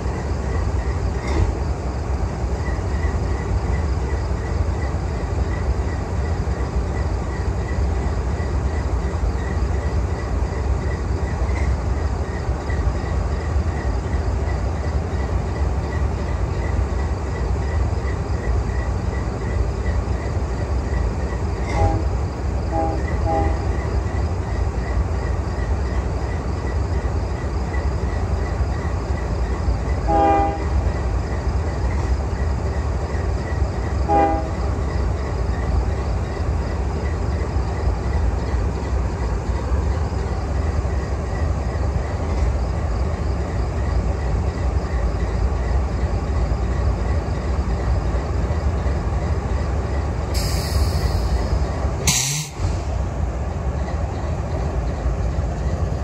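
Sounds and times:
diesel locomotives rumbling: 0:00.0 - 0:56.0
train horn blasts: 0:21.6 - 0:23.8, 0:30.0 - 0:30.8, 0:34.0 - 0:34.8.

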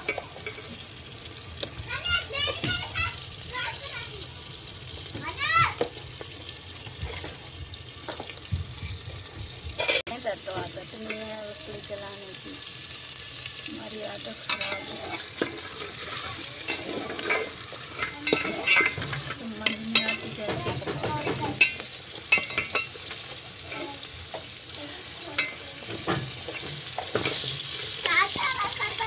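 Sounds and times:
food sizzling in hot oil: 0:00.0 - 0:29.0
metal spoon scraping pot: 0:14.4 - 0:20.3.

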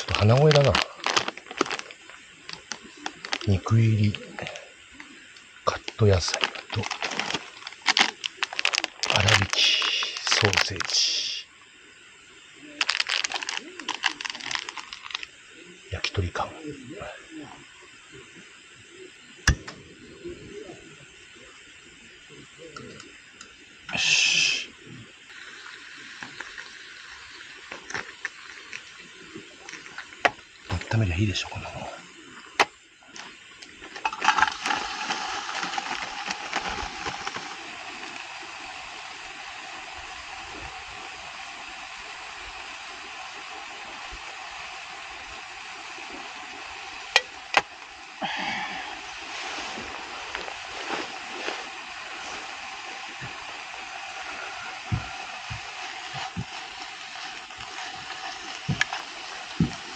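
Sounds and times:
plastic packet crinkling: 0:00.0 - 0:04.6, 0:05.7 - 0:10.9, 0:12.8 - 0:15.3, 0:27.7 - 0:28.9, 0:34.0 - 0:38.3, 0:55.5 - 0:59.9
background hiss: 0:00.0 - 0:59.9
food sizzling on camp stove: 0:00.0 - 0:59.9.

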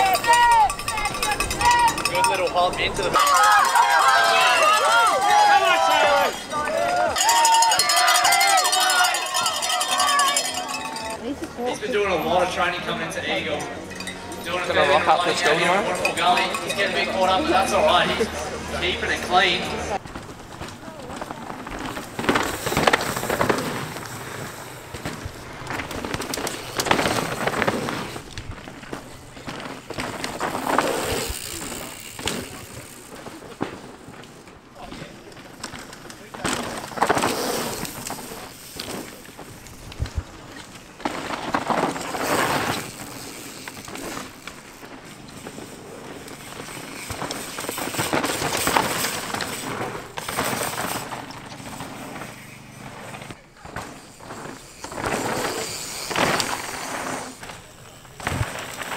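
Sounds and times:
bike rattling: 0:00.0 - 0:58.9
tyres crunching on gravel: 0:19.9 - 0:58.9.

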